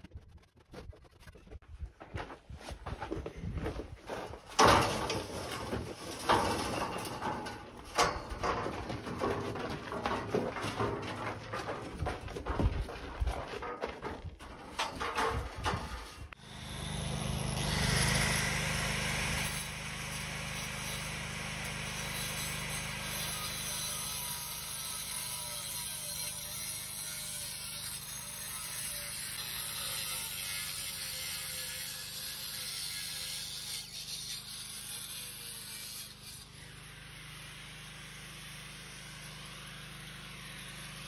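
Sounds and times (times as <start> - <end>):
angle grinder cutting concrete: 16.2 - 41.0.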